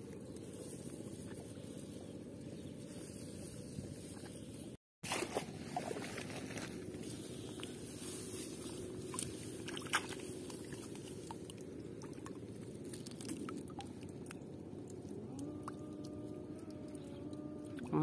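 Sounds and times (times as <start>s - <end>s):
rice stalks rustling: 0.0s - 11.4s.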